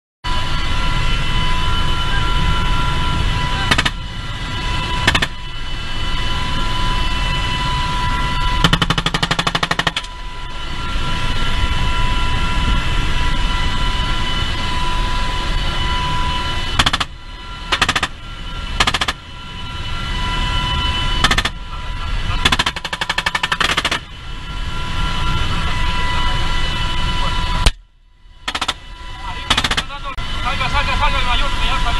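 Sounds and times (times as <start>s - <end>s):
helicopter rotor and turbine drone: 0.2s - 31.9s
machine-gun fire: 8.6s - 10.0s, 29.5s - 29.9s.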